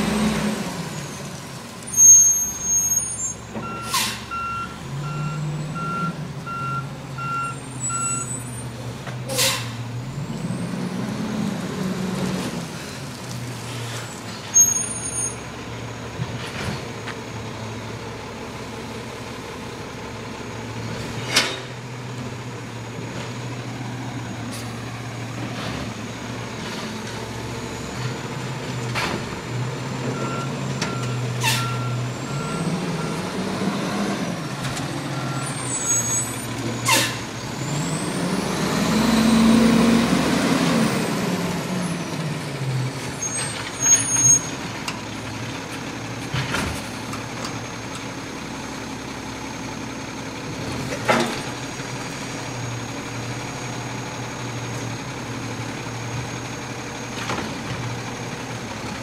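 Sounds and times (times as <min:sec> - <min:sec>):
diesel truck engine: 0:00.0 - 0:59.0
reversing alarm beeping: 0:03.6 - 0:08.5, 0:30.2 - 0:33.4
air brake hisses: 0:03.8 - 0:04.3, 0:09.3 - 0:09.8, 0:36.9 - 0:37.3.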